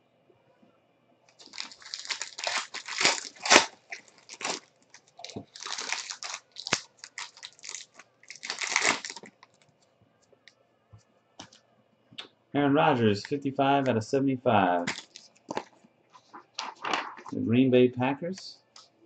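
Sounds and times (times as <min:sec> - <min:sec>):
foil pack crinkling and tearing: 0:01.4 - 0:09.6, 0:14.8 - 0:15.7
sharp foil snaps: 0:05.2 - 0:09.4.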